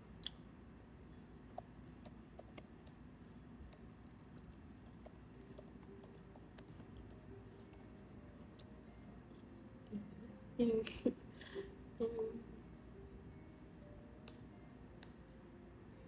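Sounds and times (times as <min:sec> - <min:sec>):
typing on a keyboard: 0:01.6 - 0:03.0, 0:03.6 - 0:07.9.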